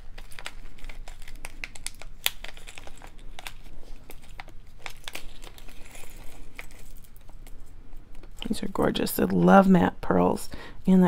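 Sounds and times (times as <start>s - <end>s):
plastic bag crinkling: 0.0s - 8.8s.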